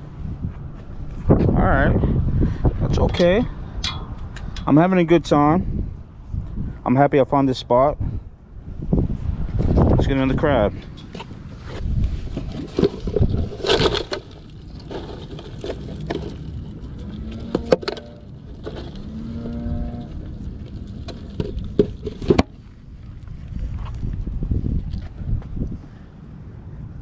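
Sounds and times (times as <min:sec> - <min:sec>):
hands rummaging through crabs: 0:11.6 - 0:22.6.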